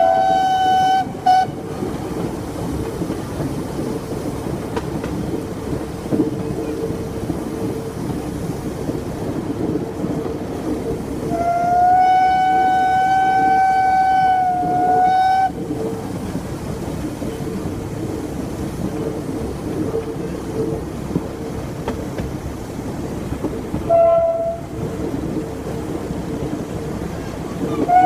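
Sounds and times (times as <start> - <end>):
steam locomotive whistle: 0.0 - 1.6, 11.3 - 15.6, 23.8 - 24.8, 27.8 - 28.0
train rolling on rails: 0.0 - 28.0.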